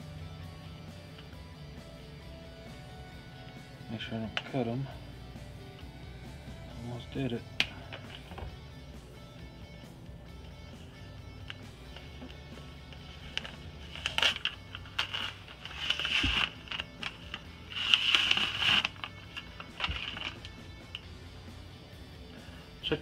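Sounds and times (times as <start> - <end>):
guitar music: 0.0 - 22.4
paper packaging rustling: 12.3 - 20.6.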